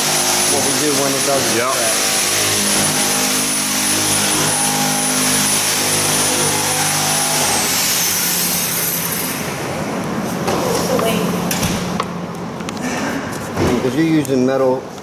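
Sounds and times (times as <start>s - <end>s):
thin high whine: 0.0s - 10.3s
machine drone: 0.0s - 12.8s.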